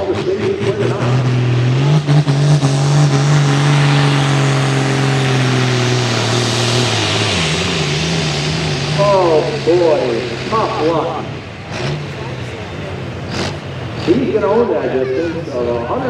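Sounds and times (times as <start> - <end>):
announcer speaking: 0.0 - 1.3, 9.0 - 11.4, 14.0 - 16.0
tractor diesel engine revving: 0.0 - 16.0.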